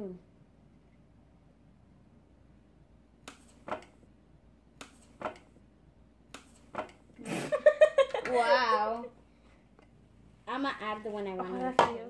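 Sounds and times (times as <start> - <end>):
scissors snipping: 3.2 - 3.9, 6.3 - 7.0.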